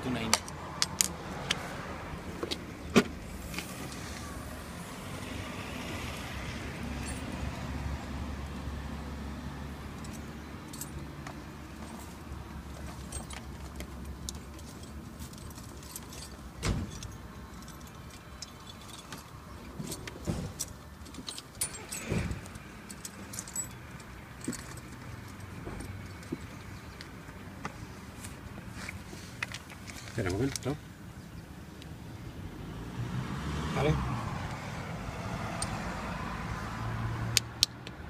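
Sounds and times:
car engine humming: 0.0s - 38.0s
metal tools clinking: 10.0s - 26.6s.

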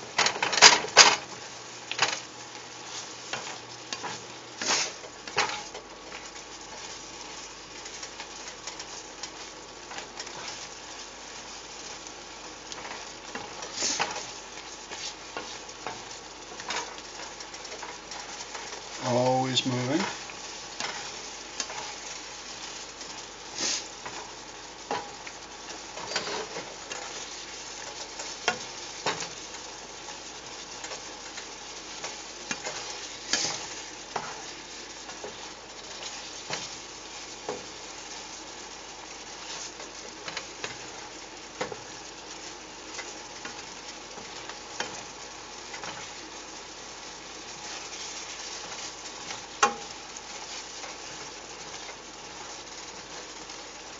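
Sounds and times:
food sizzling in a pan: 0.0s - 53.9s
utensil stirring and scraping: 20.0s - 29.5s, 30.1s - 38.3s.

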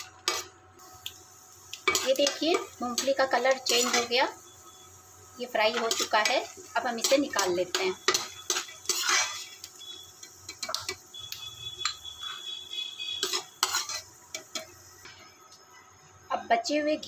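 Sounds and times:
metal spoon clinking on pan: 1.8s - 4.1s, 7.0s - 9.4s.

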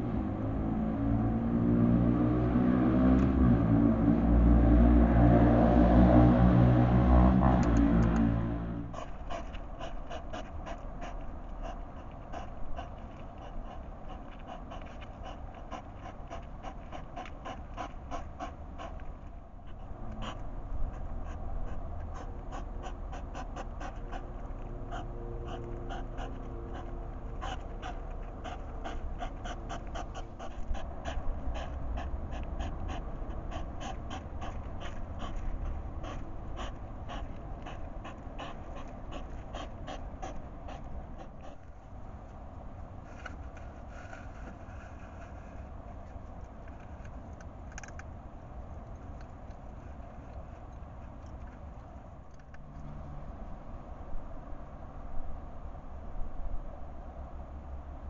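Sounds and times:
snuffling breaths: 7.1s - 47.1s
hedgehogs chewing clicks: 7.4s - 44.6s, 45.9s - 52.9s.

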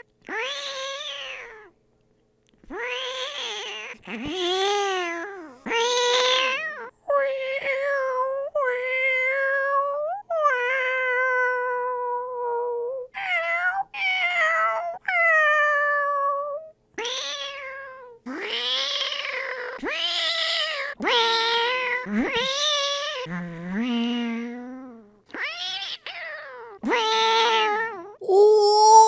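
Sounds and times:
person imitating cat meows: 26.8s - 29.0s.

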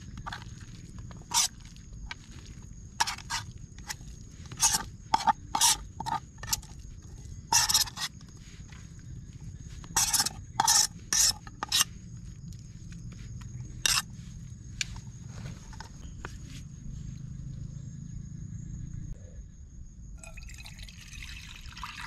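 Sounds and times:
spoon scraping plastic plate: 1.2s - 1.5s, 3.0s - 6.8s, 7.5s - 8.2s, 9.8s - 12.0s, 13.8s - 14.1s
spoon scraping metal pot: 3.0s - 6.8s, 7.5s - 8.1s, 9.9s - 11.9s, 13.8s - 14.1s.

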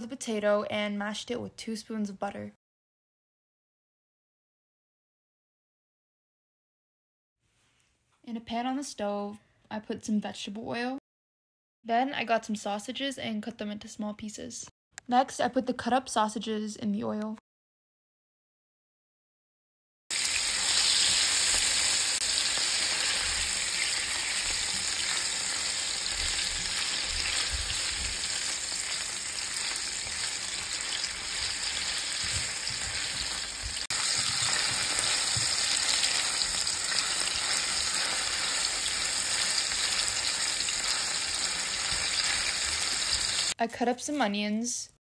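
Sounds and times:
sausage sizzling in oil: 20.1s - 43.6s.

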